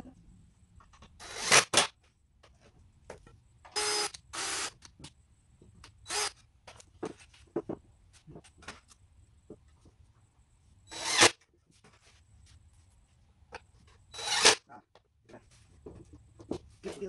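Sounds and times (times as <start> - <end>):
cordless drill drilling into wood: 1.2 - 1.9, 3.8 - 4.9, 6.0 - 6.4, 10.9 - 11.3, 14.1 - 14.6.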